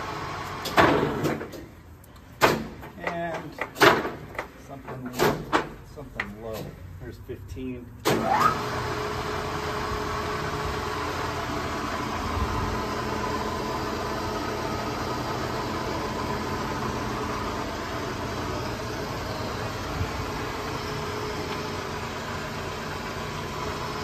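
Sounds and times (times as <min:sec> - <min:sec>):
milling machine humming and whining: 0:08.3 - 0:24.0.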